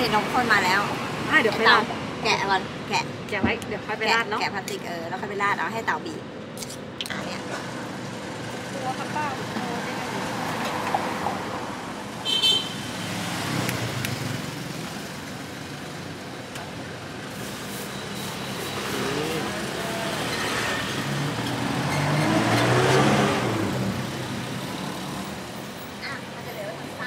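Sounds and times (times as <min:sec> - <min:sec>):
road traffic passing: 0:00.0 - 0:27.0.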